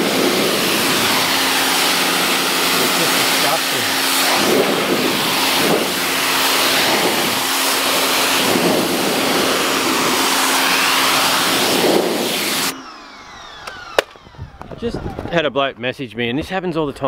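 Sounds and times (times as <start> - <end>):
pressure washer spray hissing: 0.0 - 12.7
pressure washer machine hum: 0.0 - 14.9.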